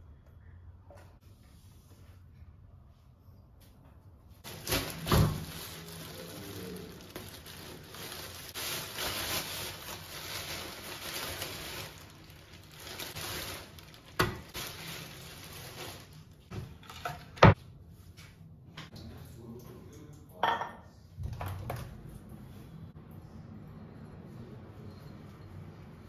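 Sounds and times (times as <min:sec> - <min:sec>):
plastic bag rustling: 0:04.4 - 0:17.6.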